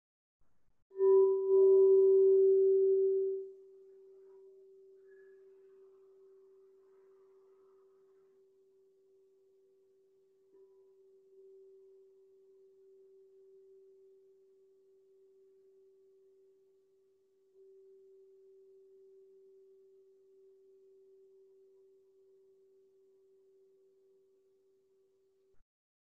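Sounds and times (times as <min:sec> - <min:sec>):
singing bowl ringing: 0:01.0 - 0:09.0.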